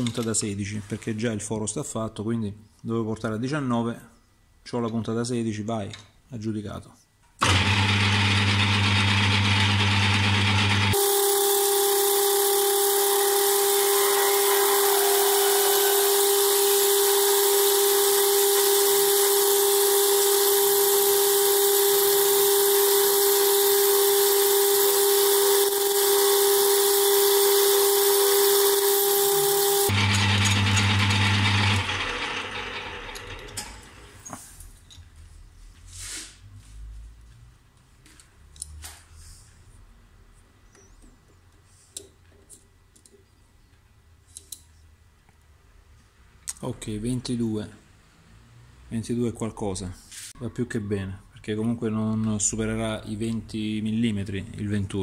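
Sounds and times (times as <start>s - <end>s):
lathe drilling whine: 7.4s - 33.5s
lathe running hum: 7.4s - 33.6s.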